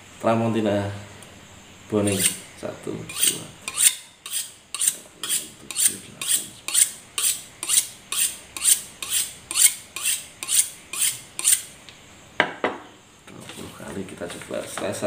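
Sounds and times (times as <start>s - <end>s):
knife scraping sharpening steel: 2.0s - 2.5s, 3.1s - 11.7s.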